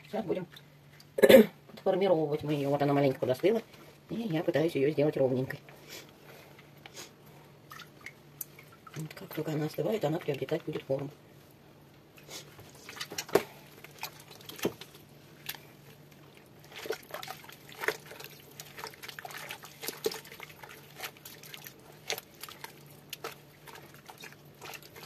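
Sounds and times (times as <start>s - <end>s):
low steady hum: 0.0s - 25.0s
water splashes and wet squelches: 7.5s - 25.0s.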